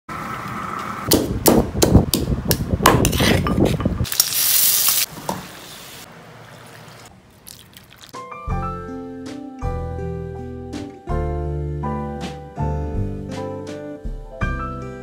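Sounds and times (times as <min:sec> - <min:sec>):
onions sizzling in hot oil: 0:04.0 - 0:06.1.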